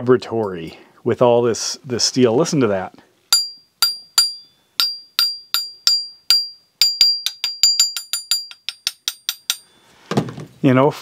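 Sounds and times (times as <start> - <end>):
metal tool tapped ringing: 3.3 - 9.8.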